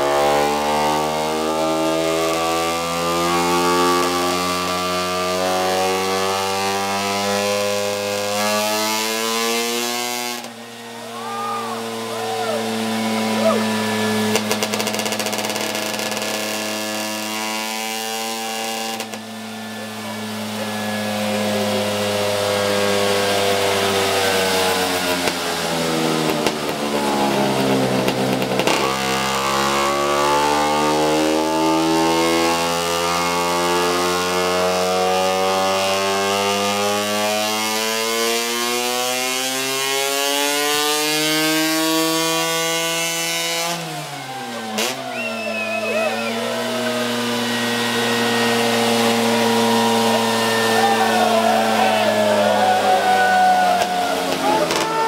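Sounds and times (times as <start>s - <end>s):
two-stroke scooter engine revving: 0.0s - 55.0s.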